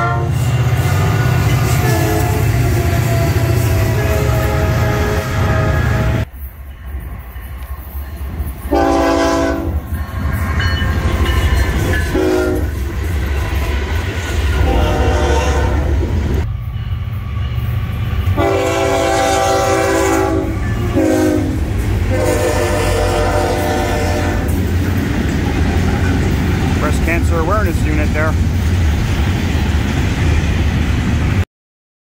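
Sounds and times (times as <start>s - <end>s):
locomotive air horns: 0.0s - 6.3s, 8.7s - 9.8s, 12.0s - 12.8s, 14.6s - 16.0s, 18.2s - 24.6s
freight train rumbling: 0.0s - 31.4s.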